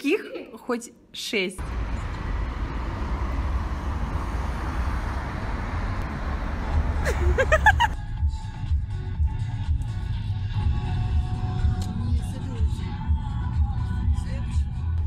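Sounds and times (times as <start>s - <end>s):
road traffic noise: 1.6s - 14.4s
music: 7.9s - 15.0s.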